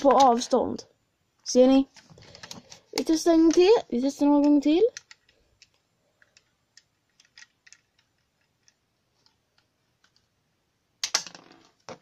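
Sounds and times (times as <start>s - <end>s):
plastic bricks clicking: 4.4s - 10.3s.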